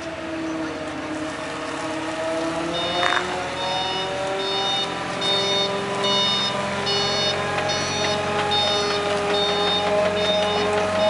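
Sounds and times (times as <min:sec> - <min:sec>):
loader engine running: 0:00.0 - 0:11.0
backup alarm beeping: 0:02.7 - 0:11.0.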